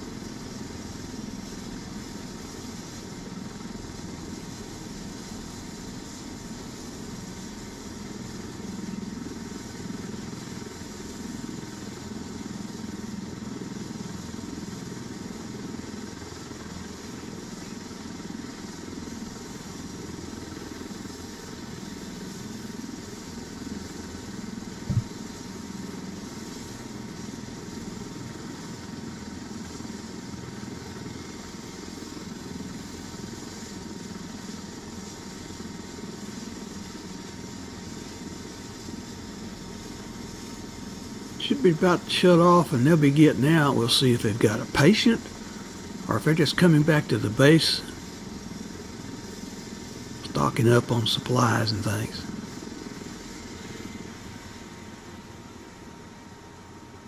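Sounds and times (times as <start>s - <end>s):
helicopter engine idling hum: 0.0s - 57.0s
short thump: 24.9s - 25.1s.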